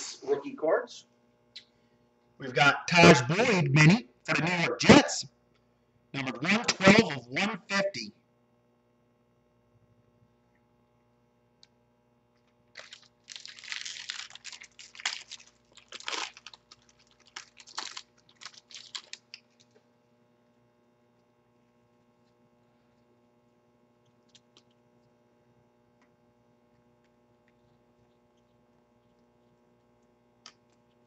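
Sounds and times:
low mains hum: 0:00.0 - 0:31.0
foil wrapper crinkling and tearing: 0:12.7 - 0:19.8.

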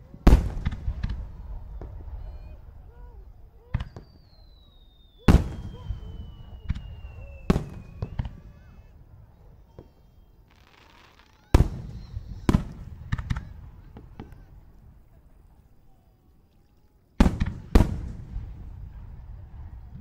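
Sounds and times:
firework shells bursting: 0:00.2 - 0:08.9
firework whistle falling in pitch: 0:01.5 - 0:08.9.

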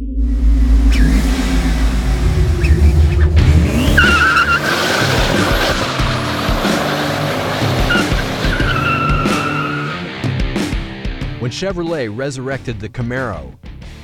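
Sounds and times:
car engine revving hard: 0:00.2 - 0:10.2
tyres spinning and squealing: 0:00.9 - 0:10.1.

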